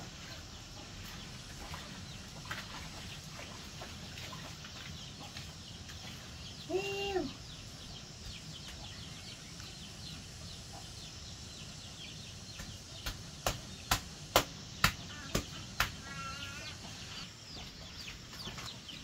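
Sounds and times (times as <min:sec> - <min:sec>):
small birds chirping: 0:00.0 - 0:19.0
sharp knocks: 0:12.6 - 0:16.0.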